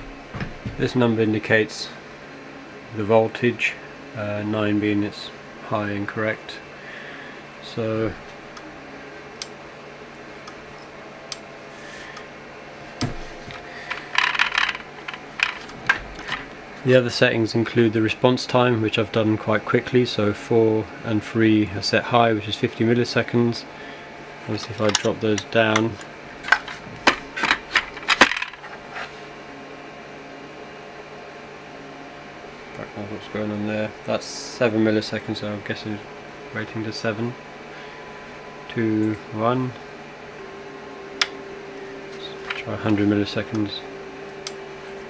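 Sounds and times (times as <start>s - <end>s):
plastic rattle and scraping: 13.8s - 16.5s, 26.4s - 29.0s.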